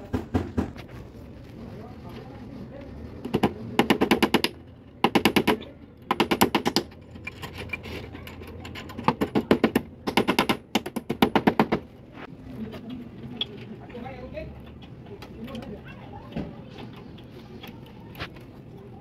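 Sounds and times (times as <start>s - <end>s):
hammer tapping nails into wood: 3.3s - 6.9s.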